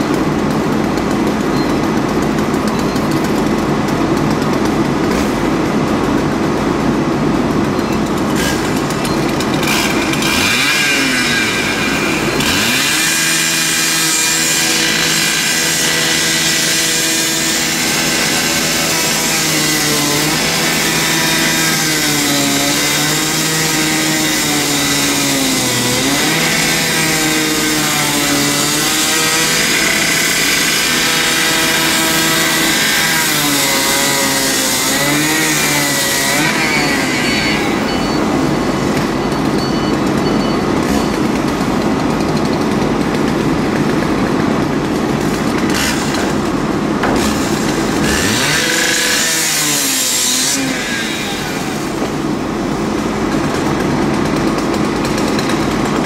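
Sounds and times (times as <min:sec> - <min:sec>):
rotary saw cutting metal: 0:08.0 - 0:40.2, 0:45.3 - 0:52.5.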